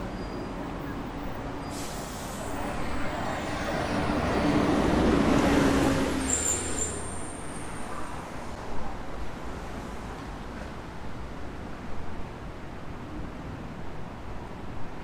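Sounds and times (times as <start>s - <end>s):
brief high squeal: 1.6s - 2.5s, 6.2s - 7.4s.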